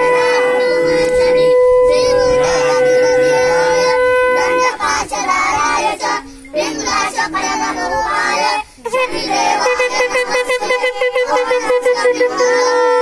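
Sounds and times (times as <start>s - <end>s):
held horn-like note: 0.0s - 5.8s, 8.9s - 13.0s
high-pitched wavering singing: 0.0s - 13.0s.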